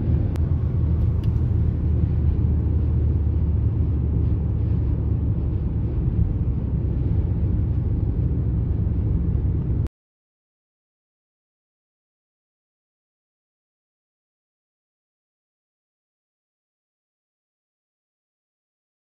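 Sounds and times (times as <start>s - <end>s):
road and tyre rumble: 0.0s - 9.9s.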